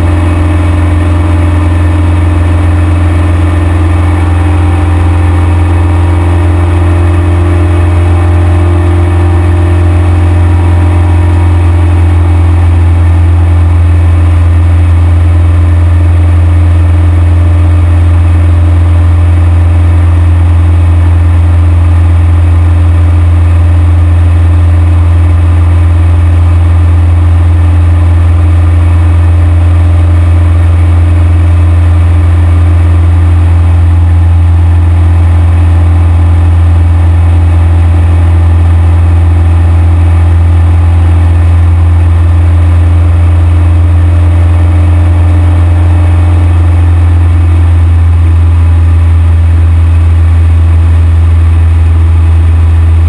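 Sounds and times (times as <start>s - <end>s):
airplane engine droning: 0.0s - 14.0s.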